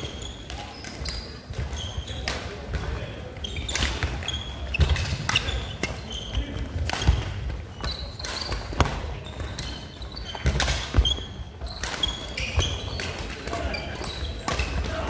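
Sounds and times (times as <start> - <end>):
shoes squeaking on wooden floor: 3.3 - 15.0
rackets striking shuttlecock: 3.6 - 6.0, 6.6 - 15.0.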